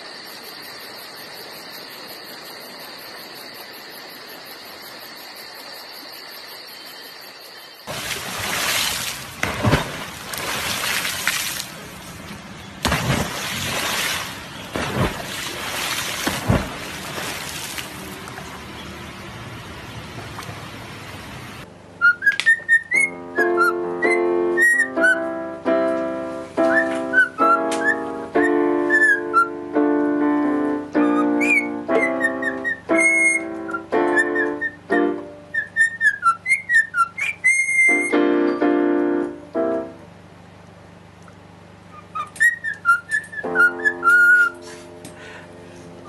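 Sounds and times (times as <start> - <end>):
rushing water: 7.9 - 21.7
cockatiel whistling: 22.0 - 25.2, 35.6 - 38.2, 41.9 - 44.6
keyboard chords: 23.0 - 35.5, 38.0 - 40.2
electronic keyboard chords: 38.0 - 40.1.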